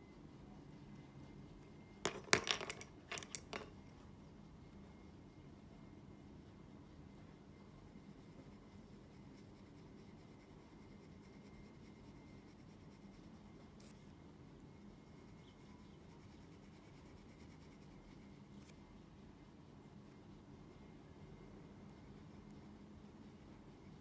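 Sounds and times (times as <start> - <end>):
pencil scratching on paper: 7.7 - 14.0, 14.8 - 18.8, 21.7 - 24.0.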